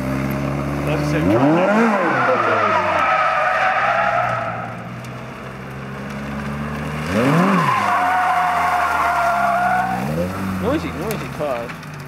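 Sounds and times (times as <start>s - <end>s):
car engine revving: 0.0s - 12.0s
tyres squealing: 1.2s - 4.9s, 7.1s - 11.6s.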